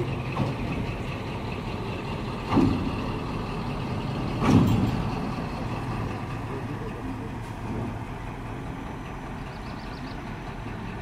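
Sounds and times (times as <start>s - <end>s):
diesel locomotive idling: 0.0s - 11.0s
loud knocks: 2.4s - 2.9s, 4.4s - 5.1s.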